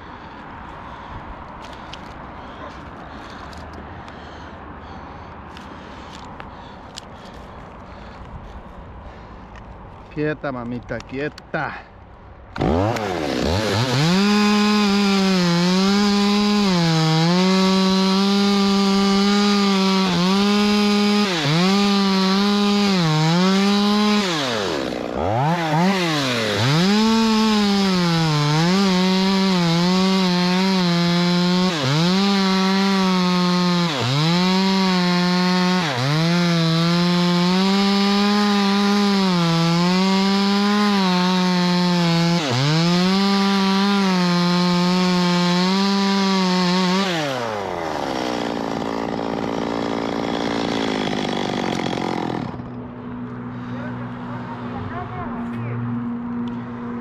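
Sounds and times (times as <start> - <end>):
chainsaw cutting wood: 12.5 - 52.9.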